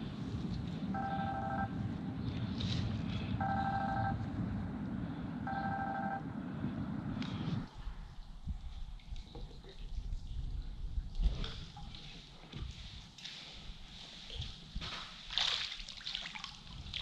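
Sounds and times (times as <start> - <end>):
steady low rumble: 0.0 - 13.0
electronic two-tone beep: 5.5 - 6.2.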